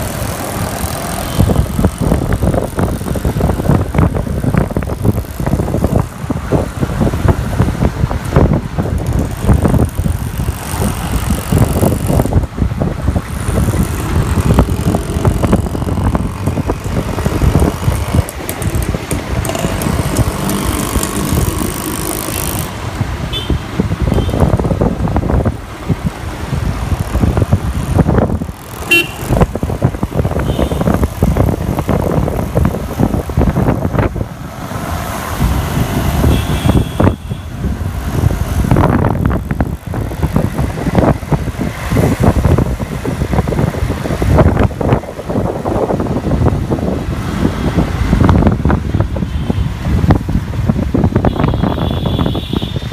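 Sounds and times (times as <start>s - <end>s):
passing traffic: 0.0s - 52.9s
wind on microphone: 0.0s - 52.9s
motorbike engine running: 9.0s - 22.8s, 26.8s - 32.7s.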